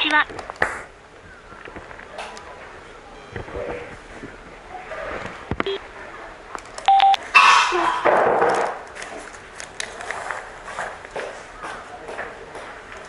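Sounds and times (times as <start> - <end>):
electronic beep: 6.9 - 7.2.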